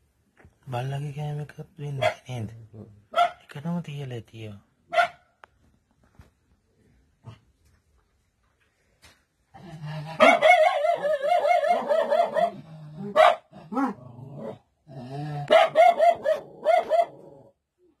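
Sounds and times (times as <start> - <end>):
animal yelps: 10.0 - 14.6, 15.4 - 17.5.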